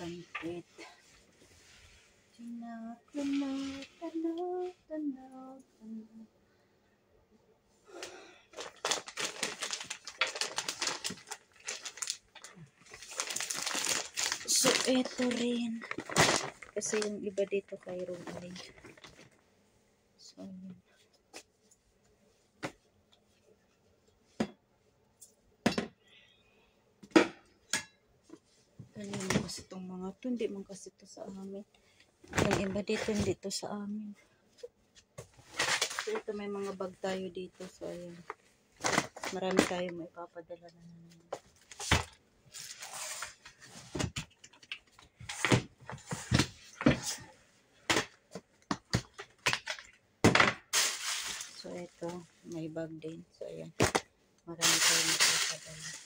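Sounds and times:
plastic and fabric rustling: 0.0 - 4.7, 7.9 - 19.5, 32.2 - 40.1, 41.0 - 50.0, 50.8 - 52.8, 54.6 - 56.0
plastic bins knocking and clattering: 32.3 - 33.4, 45.2 - 50.7.

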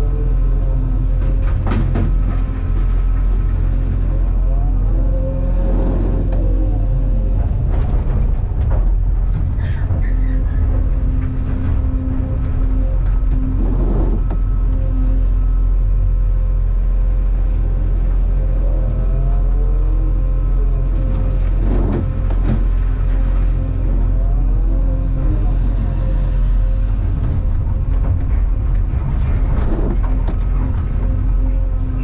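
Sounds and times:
excavator diesel engine under load: 0.0 - 32.0
hydraulic whine: 9.6 - 32.0.

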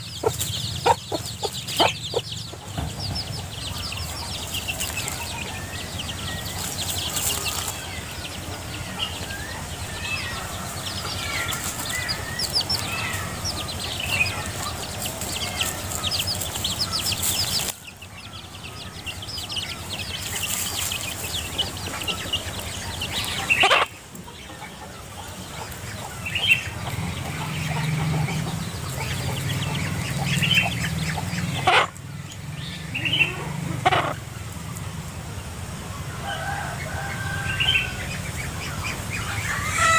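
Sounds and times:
chicks peeping: 0.0 - 39.9
dry leaves and twigs rustling: 4.0 - 8.5, 10.6 - 23.8
hen scratching leaf litter: 4.4 - 8.2, 11.2 - 18.1, 19.7 - 23.8.

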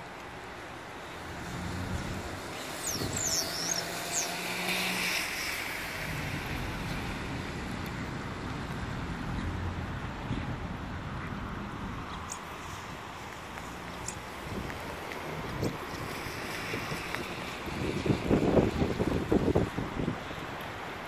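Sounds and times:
vehicle passing on wet road: 0.1 - 21.0
short high bird chirps: 2.8 - 4.3.

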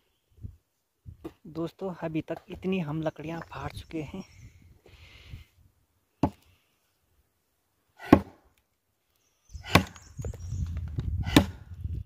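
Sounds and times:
axe chopping into a log: 6.2 - 6.4, 8.0 - 8.4, 9.6 - 10.0, 11.2 - 11.6.

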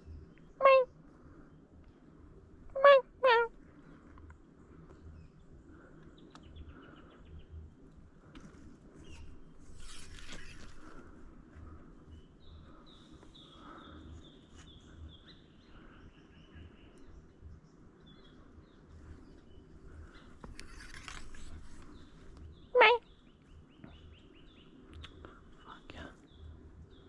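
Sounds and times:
birds chirping: 0.0 - 27.0
rustle: 8.3 - 11.1, 20.2 - 22.5.

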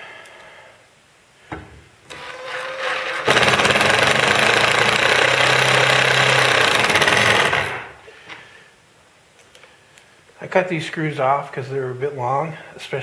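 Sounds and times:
impact driver hammering: 3.2 - 8.0.

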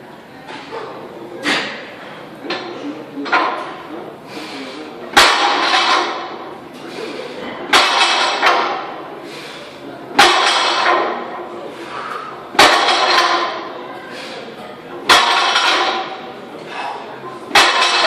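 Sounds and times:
weight plates ringing clatter: 17.5 - 18.0.

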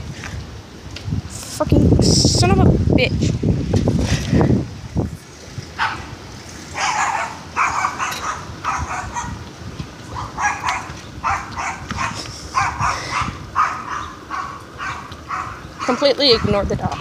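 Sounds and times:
dogs barking: 5.8 - 9.4, 10.1 - 17.0.

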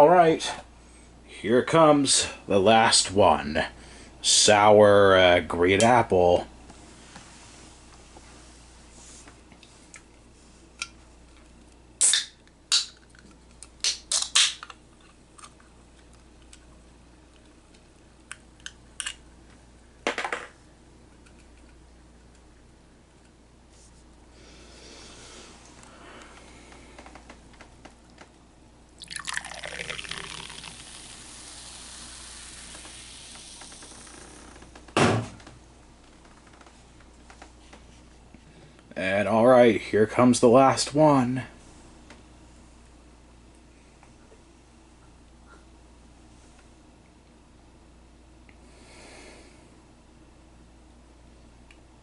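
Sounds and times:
soda can clicks and crackles: 13.8 - 14.8
soda pouring into cup: 29.0 - 34.2
carbonation hiss: 29.0 - 34.7
loud thump: 35.0 - 35.4.

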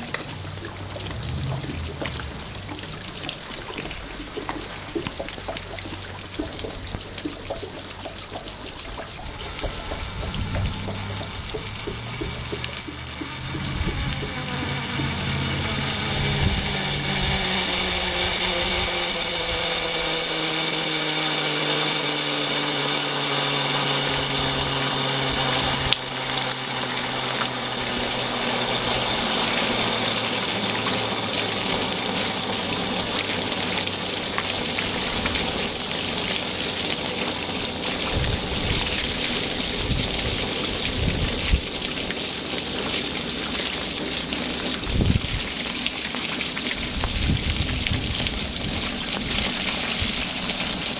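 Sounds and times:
low thumps: 0.0 - 5.1, 9.2 - 18.1
rain hissing on wet paving: 0.0 - 50.9
water gushing and splashing on stones: 0.0 - 50.9.

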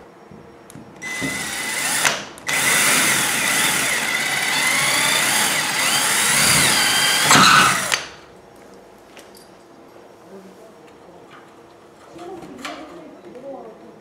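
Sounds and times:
cordless drill driving screw: 1.0 - 8.1.

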